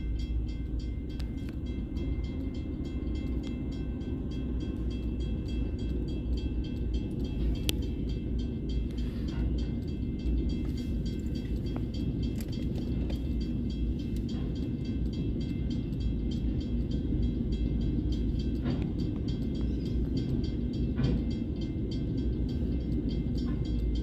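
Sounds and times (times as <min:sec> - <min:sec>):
diesel locomotive passing: 0:00.0 - 0:24.0
wheels rumbling on rail: 0:00.0 - 0:24.0.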